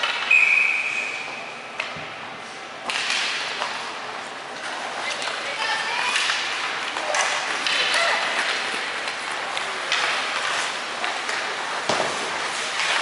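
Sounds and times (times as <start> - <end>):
skate blades scraping ice: 2.4 - 13.0
sticks clacking on puck: 2.8 - 13.0.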